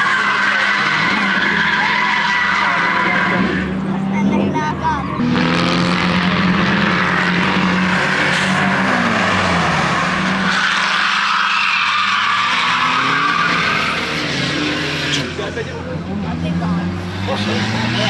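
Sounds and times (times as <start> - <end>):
tyres squealing: 0.0 - 3.9, 5.0 - 15.6
car engine revving: 0.0 - 18.0.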